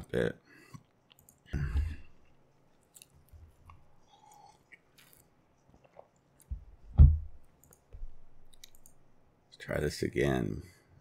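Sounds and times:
computer mouse clicks: 0.8s - 1.4s, 7.5s - 7.9s, 8.5s - 9.0s.

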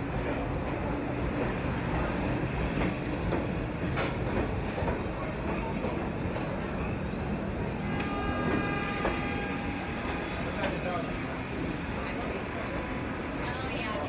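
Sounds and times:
subway train rumbling: 0.0s - 14.0s
high wheel squeal: 8.1s - 14.0s.

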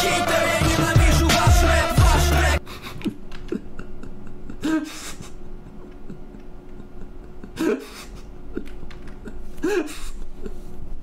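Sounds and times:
man chuckling: 2.6s - 10.9s.

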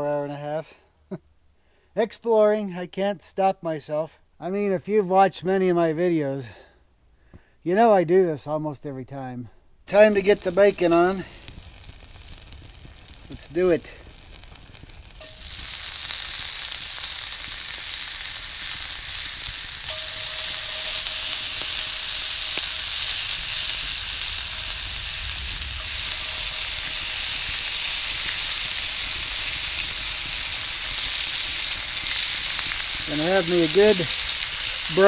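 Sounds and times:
bacon sizzling: 9.9s - 35.0s.

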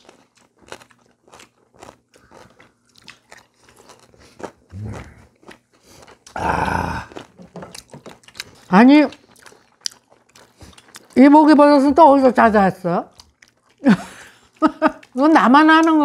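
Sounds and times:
people chewing food: 0.0s - 16.0s
closed-mouth hum: 4.6s - 5.4s.

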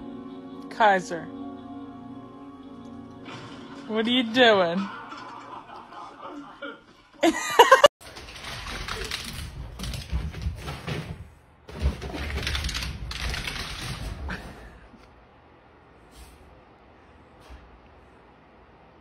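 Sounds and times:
dog claws scrabbling: 8.0s - 11.0s.

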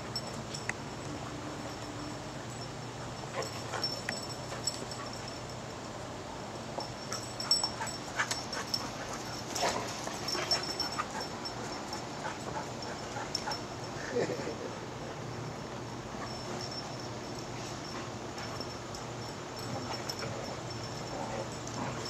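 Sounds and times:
dogs growling playfully: 19.6s - 22.0s.

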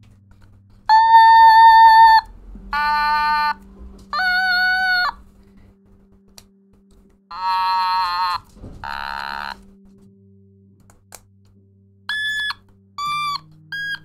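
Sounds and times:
electronic toy synthesizer notes: 0.9s - 5.2s, 7.3s - 9.6s, 12.1s - 14.0s.

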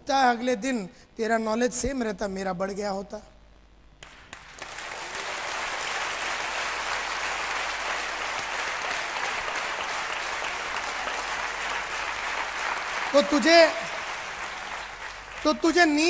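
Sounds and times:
audience applauding: 4.0s - 16.0s.

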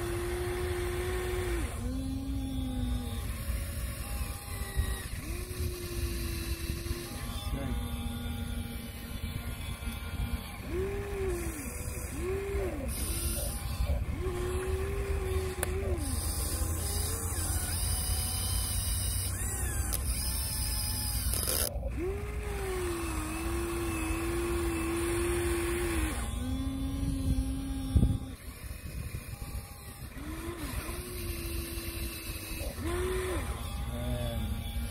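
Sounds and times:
electric motors whining: 0.0s - 34.9s.

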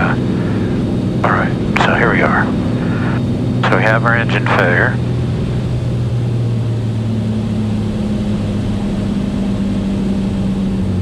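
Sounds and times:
propeller plane engine drone: 0.0s - 11.0s.

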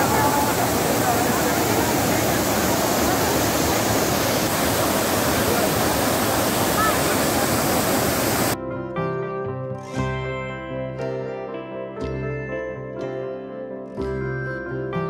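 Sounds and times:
water rushing down cascade: 0.0s - 8.6s
plucked-string music: 8.6s - 15.0s.

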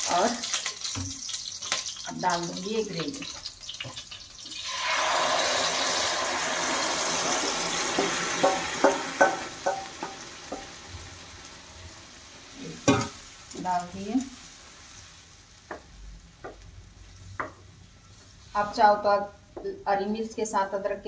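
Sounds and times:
gravy sizzling in hot oil: 0.0s - 19.6s
spoon and bowl knocking on pan: 7.9s - 10.8s, 12.8s - 13.2s.

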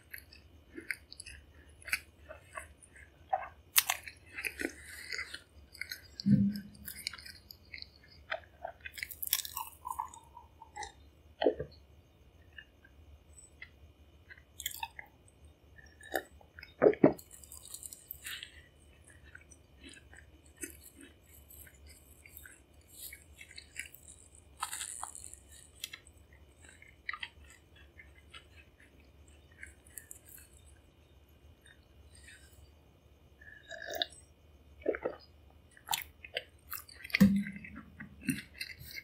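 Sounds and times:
person chewing: 0.0s - 11.8s, 12.4s - 30.9s, 31.6s - 32.7s, 33.4s - 39.0s
wet mouth clicks and smacks: 34.9s - 39.0s.

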